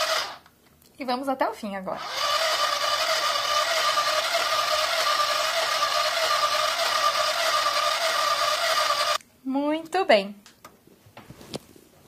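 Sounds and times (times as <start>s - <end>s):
toy sewing machine whirring: 0.0s - 0.4s, 2.0s - 9.2s.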